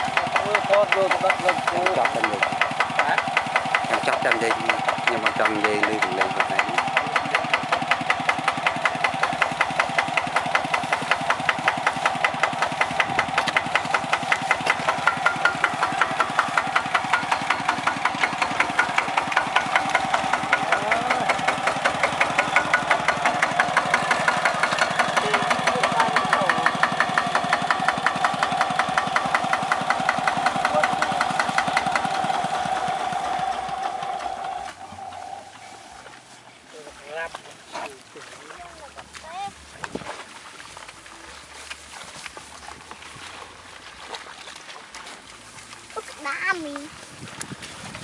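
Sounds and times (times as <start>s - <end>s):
small engine idling: 0.0s - 39.8s, 40.6s - 48.0s.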